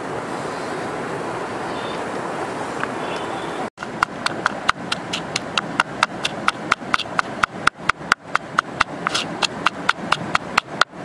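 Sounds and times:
pestle pounding in bowl: 3.8 - 11.0.

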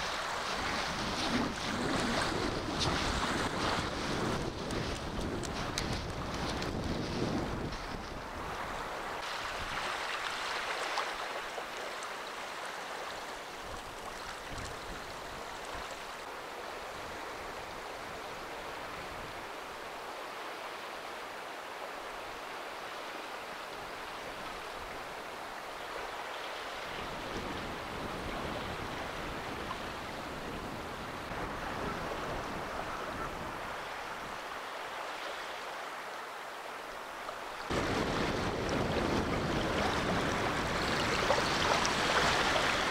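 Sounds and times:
wind rumbling on microphone: 0.0 - 9.9, 13.5 - 19.5, 26.9 - 34.6, 37.6 - 42.9
small waves on sandy shore: 0.0 - 42.9.

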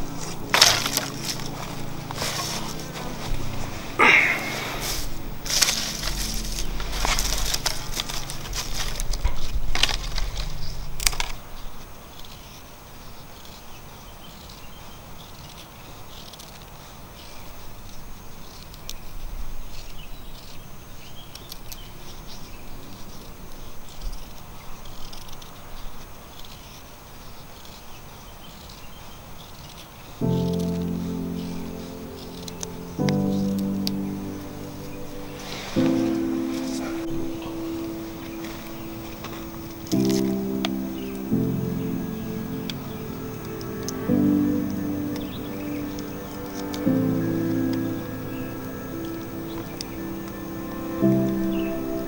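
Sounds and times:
dry leaves and twigs crackling: 0.0 - 12.5, 29.8 - 52.0
high insect drone: 0.0 - 27.8, 30.2 - 52.0.

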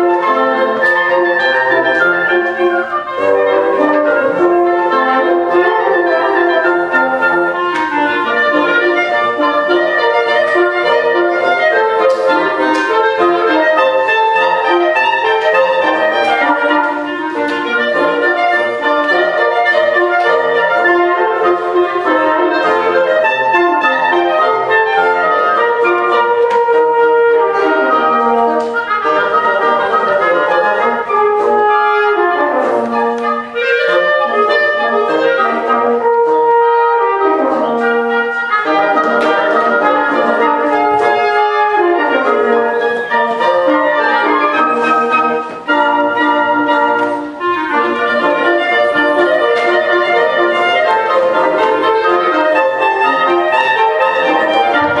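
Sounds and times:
woodwind ensemble playing: 0.0 - 55.0.

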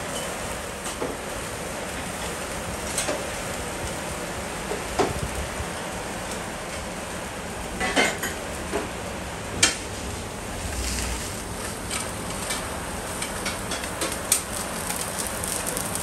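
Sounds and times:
meat sizzling on grill: 0.0 - 16.0
embers crackling: 8.4 - 16.0.

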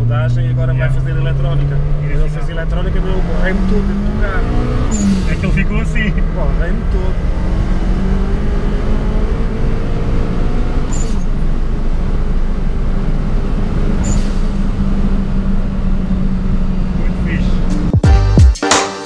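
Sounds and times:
car engine revving hard: 0.0 - 17.9.

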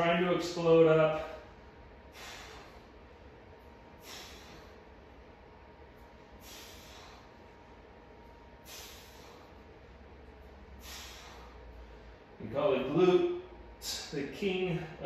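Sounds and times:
man exhaling forcefully: 2.0 - 3.0, 4.0 - 4.9, 6.4 - 7.4, 8.6 - 9.6, 10.8 - 11.7.

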